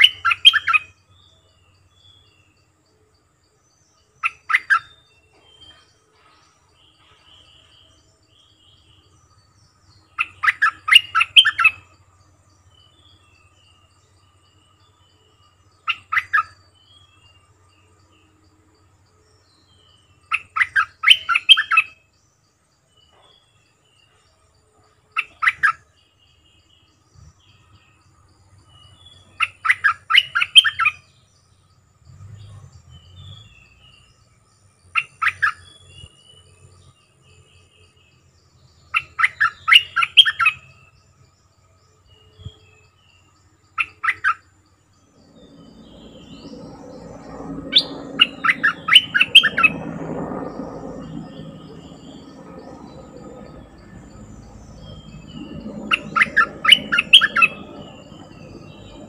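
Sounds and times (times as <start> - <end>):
bulbul singing: 0.0 - 2.8, 3.5 - 24.2, 25.1 - 59.0
faint bird chirps: 0.0 - 59.0.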